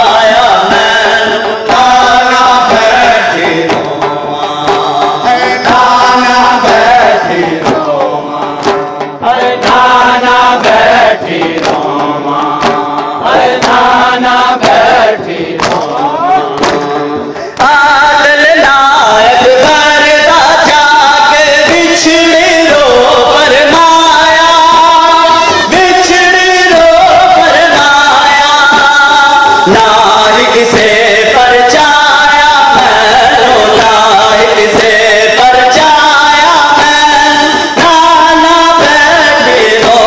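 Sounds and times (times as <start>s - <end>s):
lament sung through loudspeaker: 0.0s - 40.0s
men chanting in unison: 0.0s - 40.0s
hand slaps on chest: 15.6s - 15.9s.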